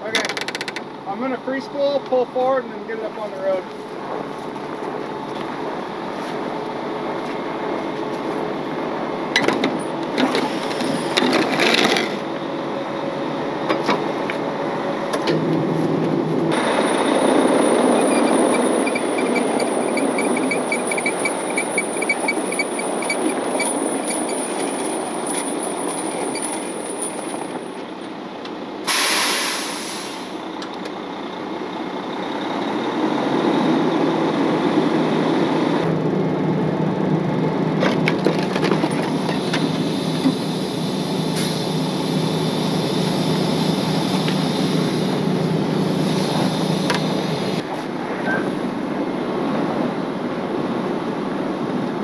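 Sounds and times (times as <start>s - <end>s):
diesel truck engine: 0.0s - 52.0s
air hiss: 28.9s - 30.4s.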